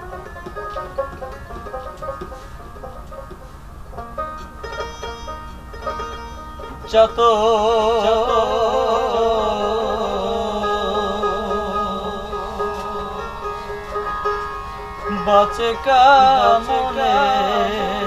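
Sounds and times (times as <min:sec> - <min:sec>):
harmonium: 0:00.0 - 0:18.0
dotara plucked: 0:03.9 - 0:18.0
man singing with vibrato: 0:06.7 - 0:14.2, 0:14.9 - 0:18.0.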